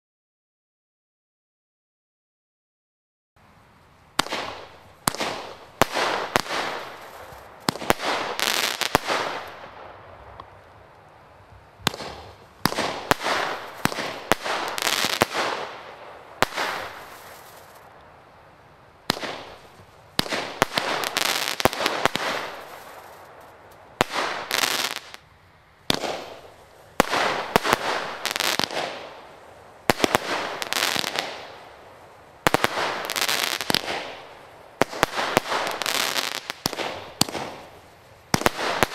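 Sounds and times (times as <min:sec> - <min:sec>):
fireworks bangs and bursts: 0:04.2 - 0:10.0, 0:11.8 - 0:17.9, 0:19.1 - 0:25.2, 0:25.9 - 0:31.8, 0:32.4 - 0:38.9.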